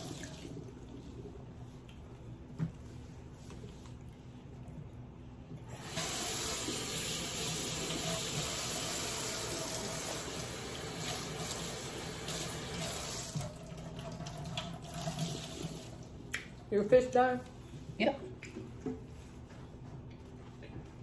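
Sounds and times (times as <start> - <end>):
water running from tap: 0.0 - 0.8, 5.6 - 16.3.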